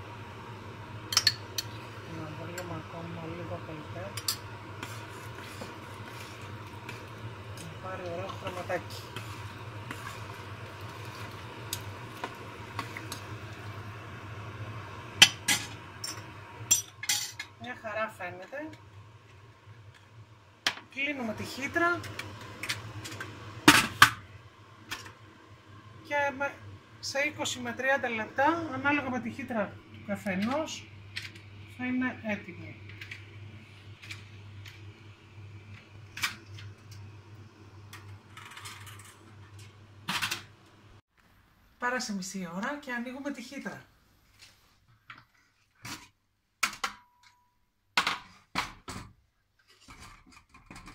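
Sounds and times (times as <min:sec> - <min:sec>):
low steady hum: 0:00.0 - 0:44.0.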